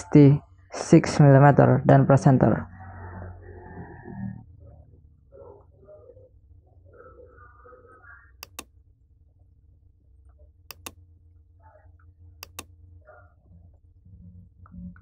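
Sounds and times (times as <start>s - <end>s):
low steady hum: 0.0s - 15.0s
computer mouse clicking: 8.4s - 8.7s, 10.7s - 11.0s, 12.4s - 12.7s.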